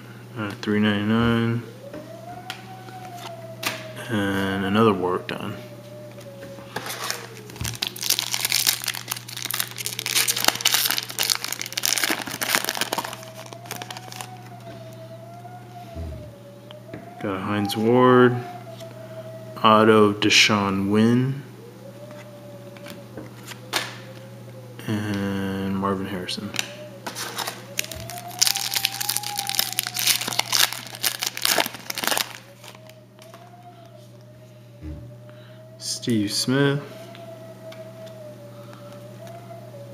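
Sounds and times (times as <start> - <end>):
wrapper crinkling and tearing: 6.8 - 14.6, 26.6 - 33.4.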